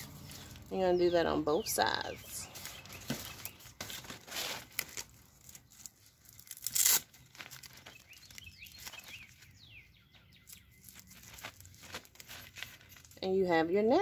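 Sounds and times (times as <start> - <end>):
birds chirping faintly: 0.0 - 4.5, 7.3 - 14.0
nylon netting rustling: 1.8 - 9.6, 10.8 - 13.3
velcro ripping: 3.9 - 9.1, 10.8 - 13.2.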